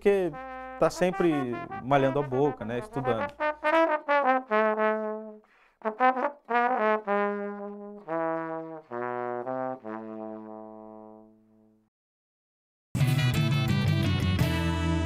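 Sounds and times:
trombone playing held notes: 0.3 - 11.3.

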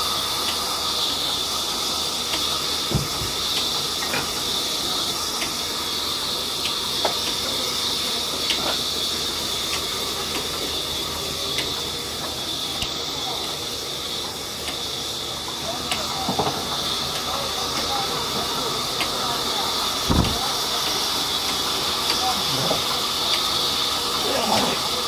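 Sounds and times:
heavy thump: 20.1 - 20.4.

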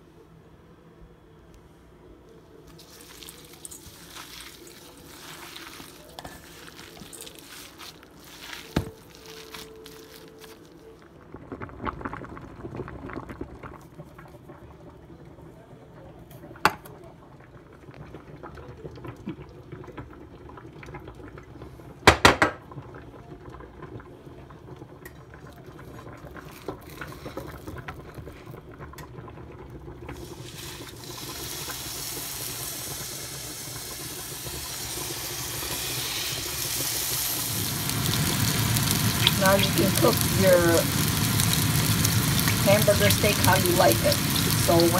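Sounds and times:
meat sizzling in a frying pan: 30.2 - 44.9.

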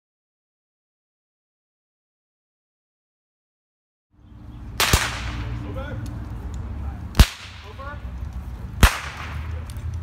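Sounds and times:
musket shots cracking: 4.8 - 5.6, 7.2 - 7.8, 8.8 - 9.7.

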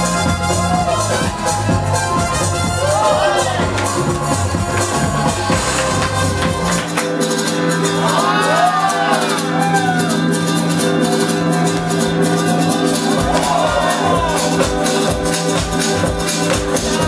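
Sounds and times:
bass: 0.0 - 17.0
loud music with a beat: 0.0 - 17.0.

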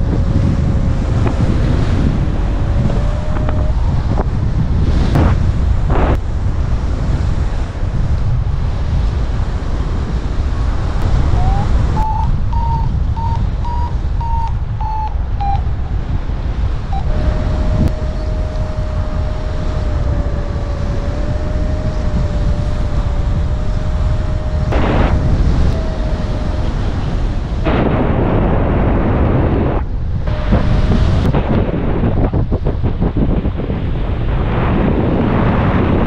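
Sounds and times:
steady low tone: 0.0 - 6.2, 11.0 - 32.6
wind rushing over microphone: 0.0 - 36.0
short high beeps: 11.4 - 15.7, 16.9 - 18.6.

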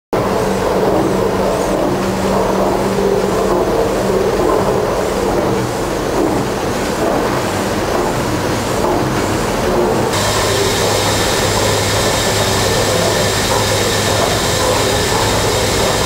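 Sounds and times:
low machinery hum: 0.2 - 16.0
steam engine running: 10.1 - 16.0.

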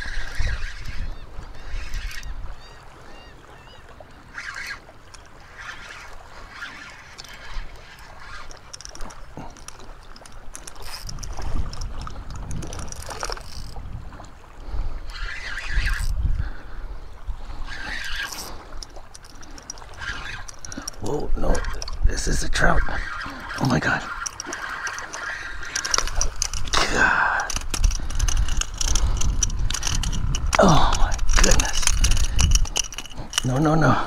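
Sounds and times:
wind gusting on microphone: 0.0 - 2.6, 10.2 - 34.0.

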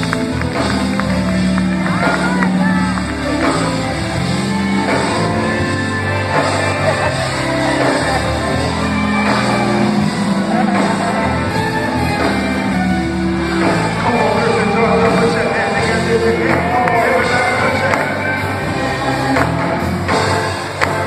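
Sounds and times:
live gospel band playing: 0.0 - 21.0
person singing: 13.3 - 19.9.

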